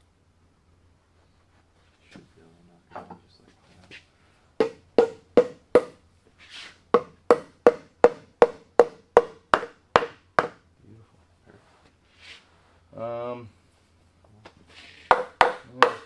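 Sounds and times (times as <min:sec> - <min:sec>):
mallet knocking on wood: 0:04.6 - 0:06.0, 0:06.9 - 0:10.6, 0:15.1 - 0:16.0.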